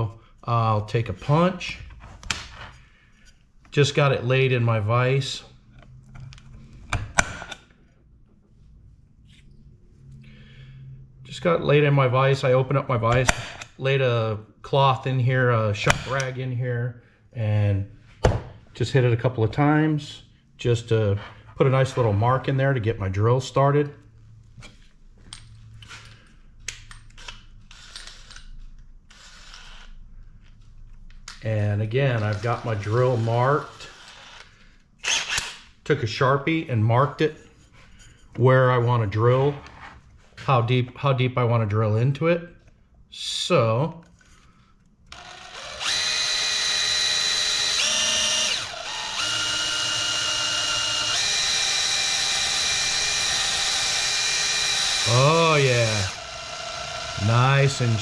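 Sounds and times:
cordless drill whine: 0:29.1 - 0:29.9, 0:32.2 - 0:35.5, 0:45.1 - 0:58.0.

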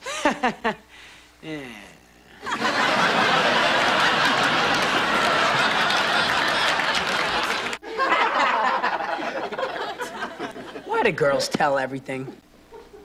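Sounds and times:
studio audience laughing and applauding: 0:02.4 - 0:10.9.

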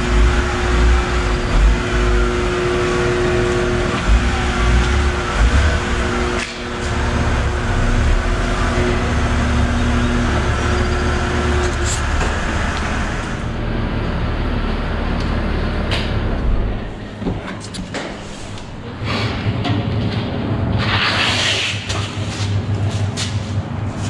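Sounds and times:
car engine low rumble: 0:00.0 - 0:17.4.

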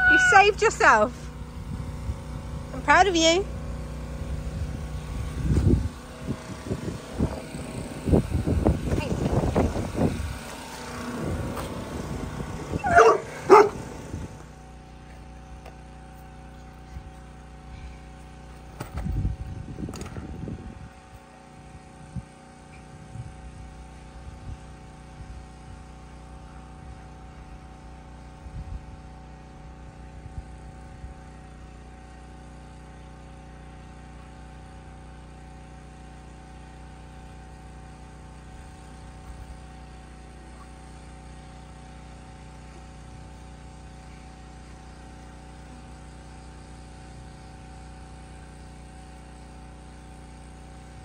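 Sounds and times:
steady mechanical hum: 0:00.0 - 0:51.0
dog barking: 0:12.8 - 0:13.9.

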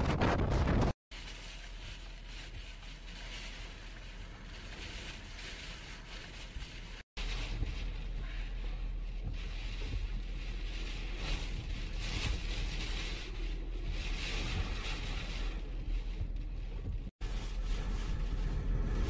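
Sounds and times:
strong wind gusting: 0:00.0 - 0:01.0, 0:13.6 - 0:19.0
wind buffeting microphone: 0:00.0 - 0:01.0.

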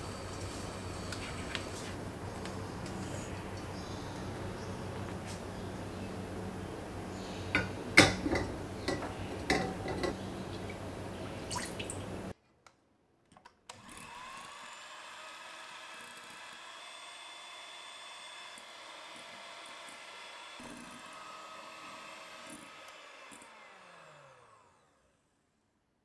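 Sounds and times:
glass bowl clinking on saucepan: 0:07.6 - 0:10.2
electric hand mixer whipping: 0:13.8 - 0:24.9.

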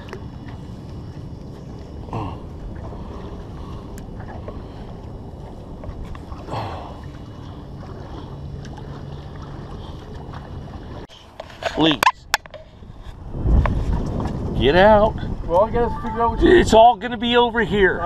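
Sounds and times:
water slapping: 0:00.0 - 0:12.5
waves lapping against boat hull: 0:00.0 - 0:18.0
wind rumbling on microphone: 0:00.0 - 0:18.0.

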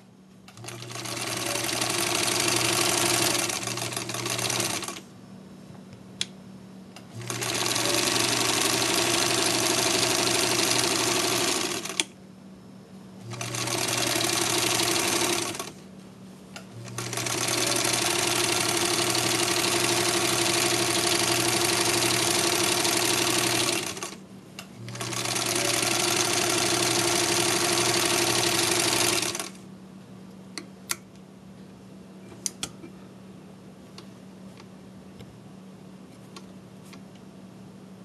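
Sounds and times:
sewing machine stitching: 0:00.5 - 0:05.0, 0:07.1 - 0:12.0, 0:13.3 - 0:15.8, 0:16.8 - 0:24.2, 0:24.8 - 0:29.6.

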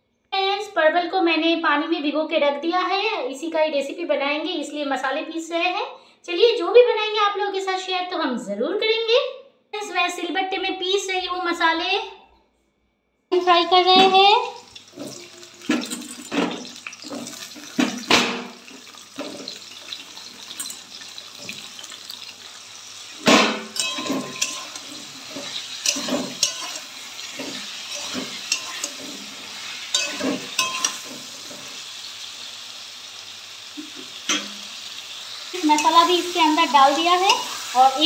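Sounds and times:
vegetables sizzling in hot oil: 0:13.3 - 0:38.0
spatula scraping a pan: 0:14.9 - 0:22.2, 0:23.0 - 0:31.8.

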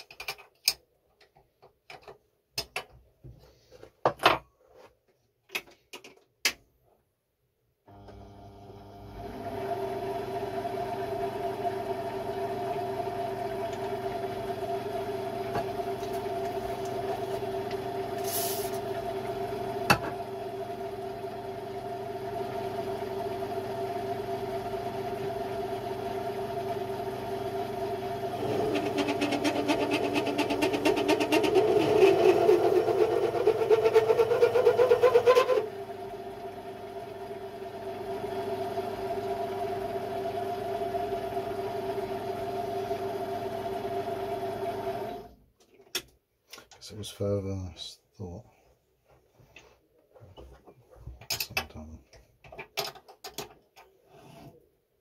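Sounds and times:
lathe motor hum: 0:08.0 - 0:45.3.

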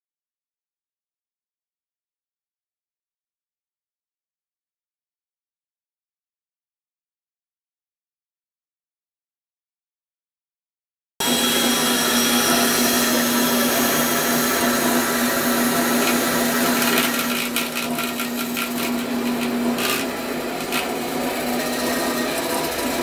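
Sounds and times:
bandsaw motor hum: 0:11.2 - 0:23.0.

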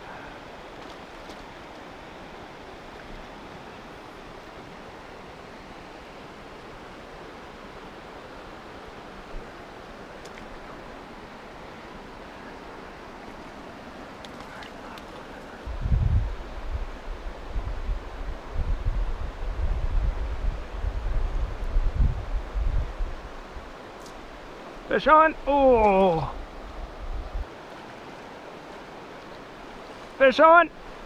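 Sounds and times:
flowing river water: 0:00.0 - 0:31.0.

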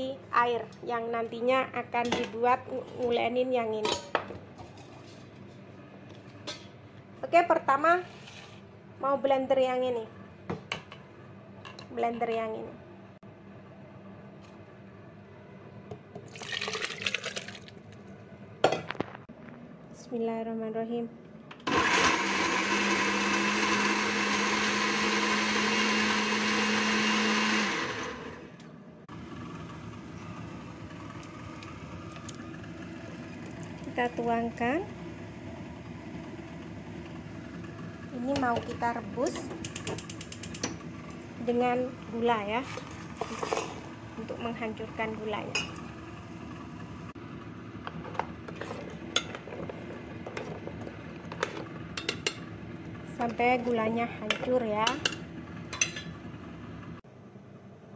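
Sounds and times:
blender running: 0:21.6 - 0:30.2.

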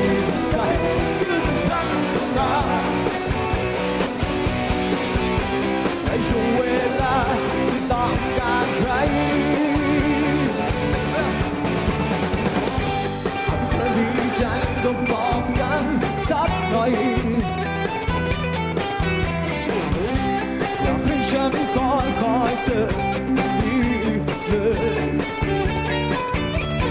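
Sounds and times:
person singing: 0:00.0 - 0:03.6, 0:05.8 - 0:11.8, 0:13.3 - 0:17.7, 0:19.8 - 0:25.6
drum kit: 0:00.0 - 0:26.9
electric guitars: 0:00.0 - 0:26.9.

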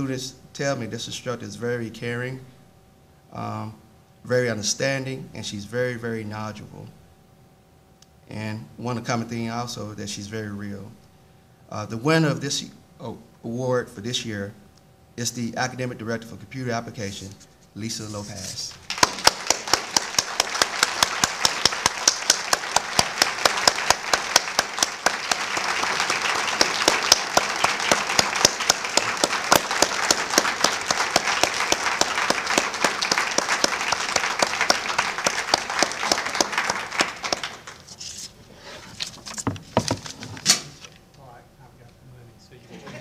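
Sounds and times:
close hands clapping steadily: 0:18.7 - 0:38.0
audience applauding: 0:18.8 - 0:38.0.

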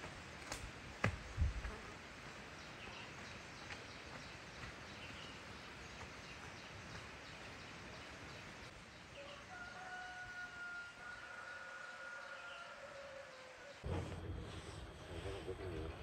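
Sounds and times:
distant rooster crowing: 0:09.2 - 0:13.8.

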